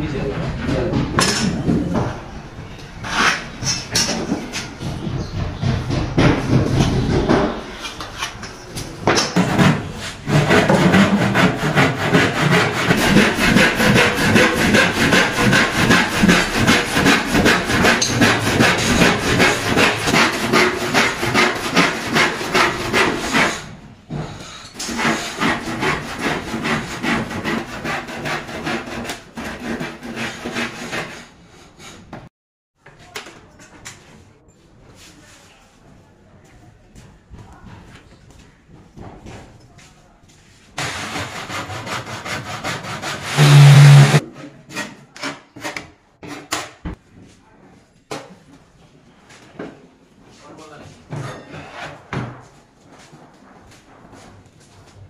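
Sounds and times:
hand tool rubbing plywood edge: 9.4 - 23.7, 24.8 - 32.0, 40.8 - 46.4.

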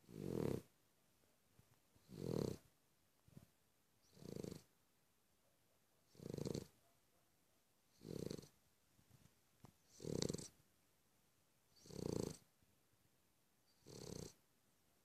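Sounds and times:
dog snoring: 0.0 - 0.7, 2.0 - 2.6, 4.0 - 4.7, 6.1 - 6.7, 8.0 - 8.5, 9.9 - 10.5, 11.8 - 12.4, 13.7 - 14.4.

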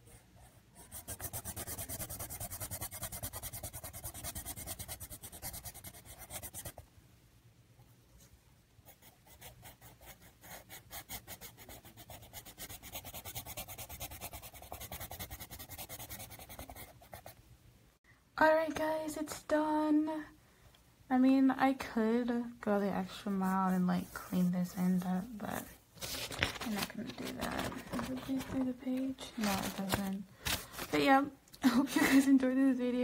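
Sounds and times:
colouring tool scratching paper: 0.8 - 6.8, 8.9 - 17.3.

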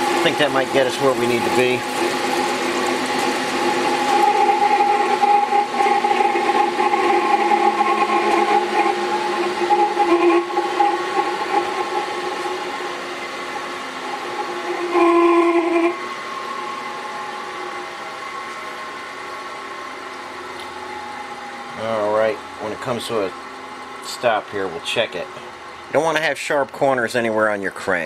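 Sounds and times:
dresser rasping on grinding wheel: 0.0 - 12.9, 14.0 - 16.0
grinding wheel whine: 0.0 - 28.0.

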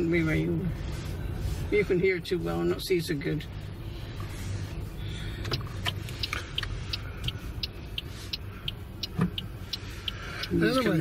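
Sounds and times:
engine and road rumble: 0.0 - 11.0.

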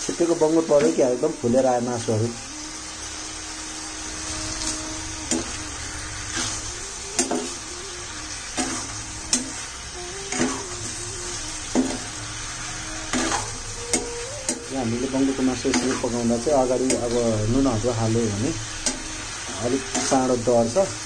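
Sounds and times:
meat sizzling in oil: 0.0 - 21.0
metal spoon scraping a pan: 8.5 - 9.6, 10.3 - 10.6, 13.1 - 14.7, 15.4 - 16.2.

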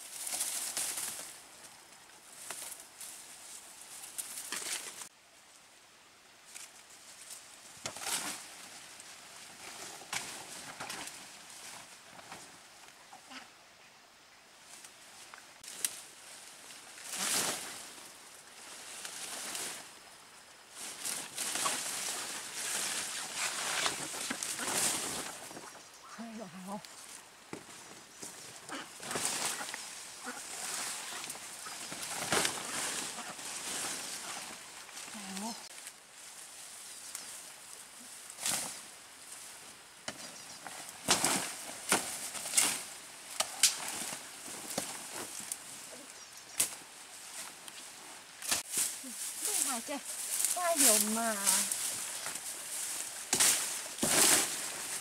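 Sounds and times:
leafy branches rustling: 0.0 - 13.4, 14.5 - 55.0
plant stems snapping: 41.0 - 44.0.

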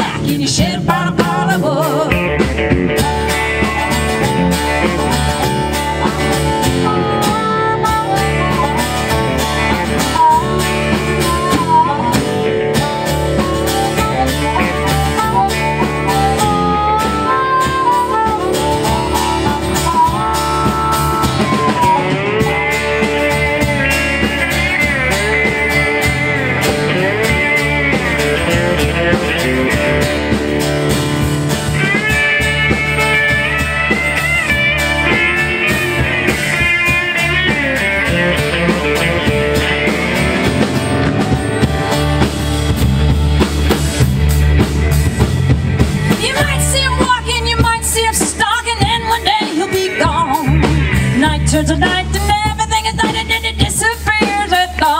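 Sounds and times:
strummed acoustic guitar: 0.0 - 47.4
electric guitar lead: 0.0 - 54.9
harmonica: 0.0 - 54.9
drum beat: 17.5 - 47.8.

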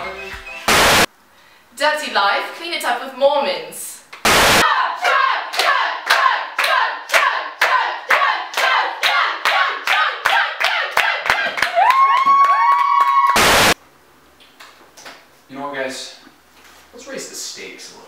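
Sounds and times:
tv static burst: 0.7 - 1.1, 4.2 - 4.6, 13.4 - 13.8
rhythmic hand claps: 5.5 - 13.7.

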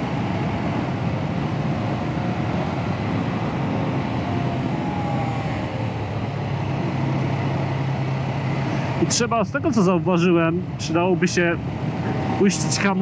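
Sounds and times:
motorcycle engine running: 0.0 - 4.6
wind and road noise: 0.0 - 13.0.

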